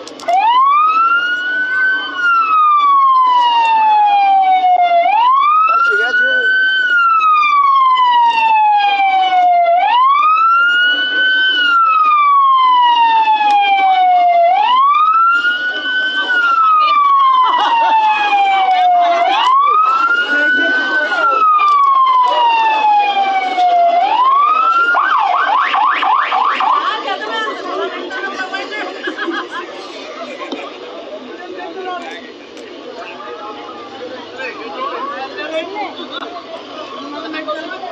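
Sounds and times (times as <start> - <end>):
emergency vehicle siren wailing: 0.0 - 28.7
siren fast yelp: 0.3 - 26.9.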